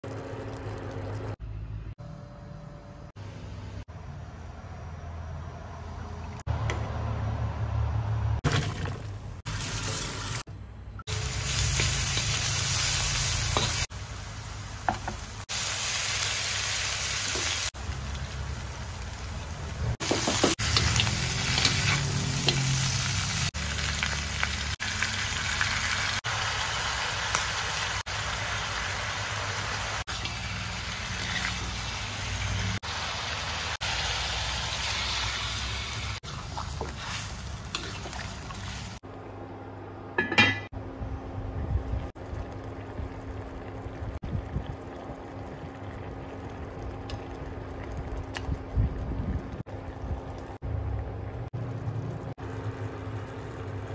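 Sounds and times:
meat sizzling in a wok: 0:11.1 - 0:39.0.

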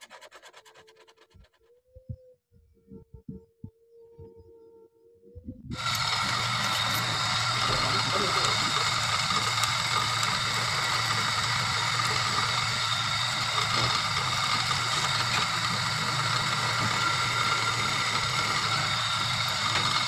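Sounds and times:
electric motor humming: 0:05.7 - 0:20.0.

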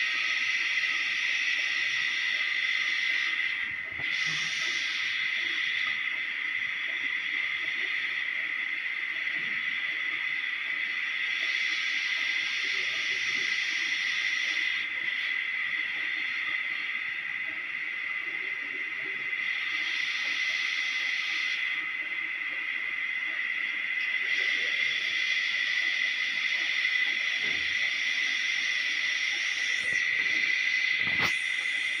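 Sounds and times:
high-pitched hiss with whine: 0:00.0 - 0:32.0.

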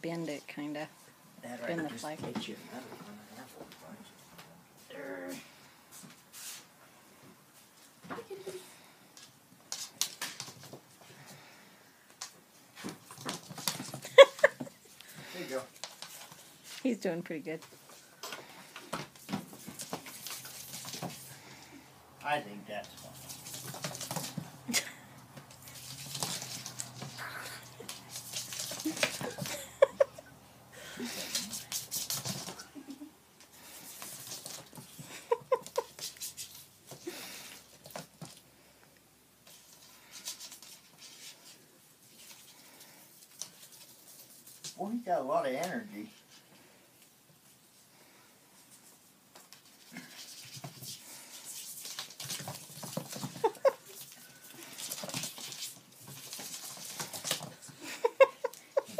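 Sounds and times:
kitten paws pattering on wood: 0:22.8 - 0:30.1, 0:31.1 - 0:32.6, 0:48.6 - 0:58.9.

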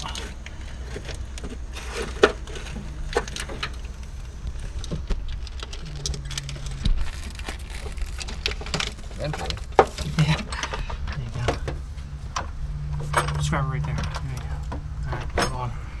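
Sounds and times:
plastic engine parts clicking and rustling: 0:00.0 - 0:11.8
steady low hum: 0:00.0 - 0:16.0.

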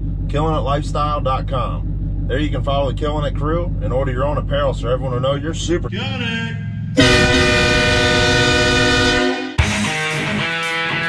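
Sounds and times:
multi-tone horn blast: 0:06.9 - 0:10.0
rock music with electric guitar: 0:08.9 - 0:11.0.

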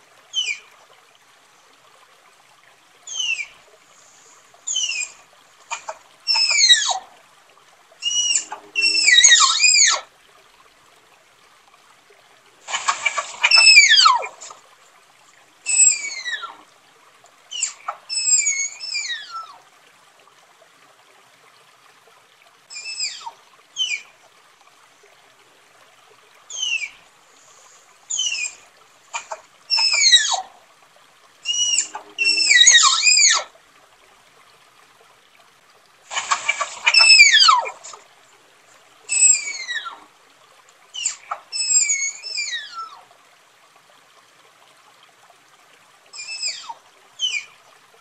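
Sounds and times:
tapir whistling squeals: 0:03.1 - 0:03.5, 0:04.7 - 0:05.2, 0:05.8 - 0:07.0, 0:08.0 - 0:10.1, 0:12.9 - 0:14.5, 0:15.7 - 0:16.6, 0:17.5 - 0:19.5, 0:22.7 - 0:24.0, 0:26.5 - 0:27.0, 0:28.1 - 0:28.6, 0:29.2 - 0:30.4, 0:31.5 - 0:33.5, 0:36.2 - 0:38.0, 0:39.1 - 0:40.0, 0:41.0 - 0:43.0, 0:46.2 - 0:47.5.

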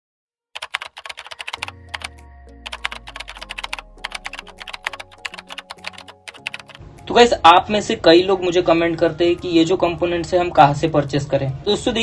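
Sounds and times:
keyboard typing clicks: 0:00.6 - 0:06.8
background music with bass line: 0:01.6 - 0:06.3.

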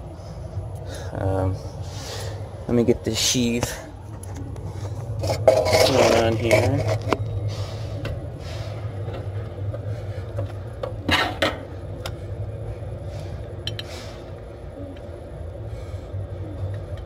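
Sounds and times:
steady low hum: 0:00.0 - 0:17.0
metal scraping rasp: 0:05.2 - 0:07.2.

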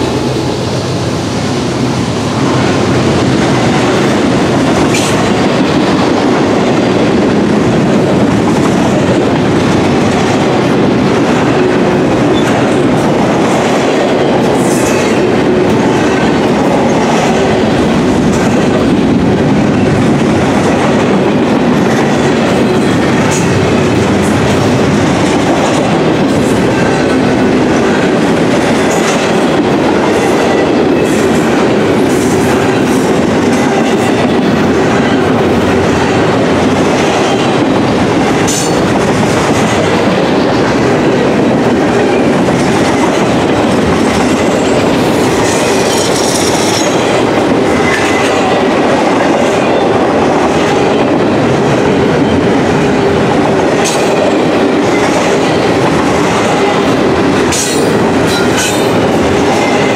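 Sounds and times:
freight train wheels rumbling on rail: 0:00.0 - 0:59.9.

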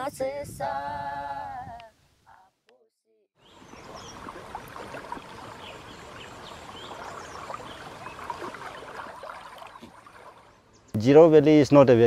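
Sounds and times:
water trickling and flowing: 0:03.4 - 0:10.9.

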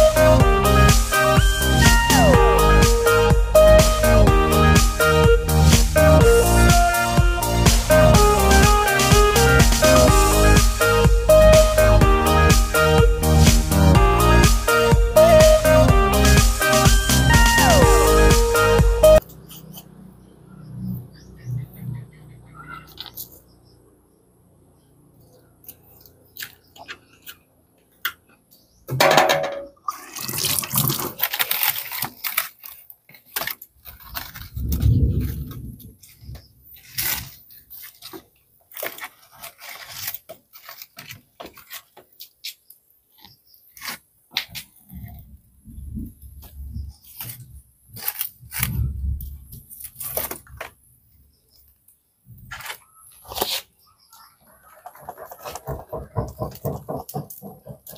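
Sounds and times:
firewood sticks knocking: 0:55.0 - 0:57.9.

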